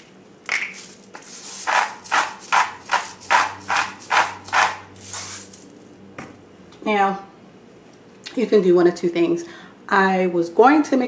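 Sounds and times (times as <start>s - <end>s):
salt grinder crunching: 0.5s - 5.6s.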